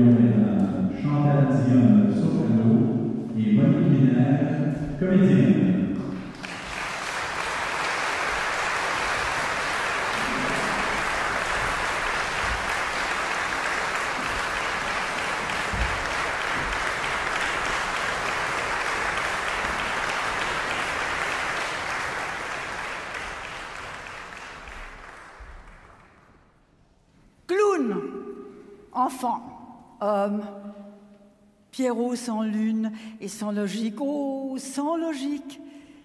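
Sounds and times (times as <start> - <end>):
audience applauding: 6.0 - 26.6.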